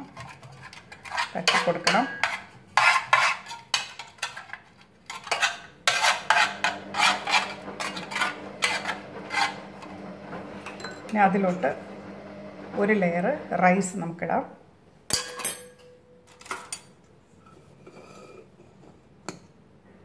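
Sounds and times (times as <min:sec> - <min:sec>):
metal spoon scraping metal pot: 0:00.0 - 0:11.2.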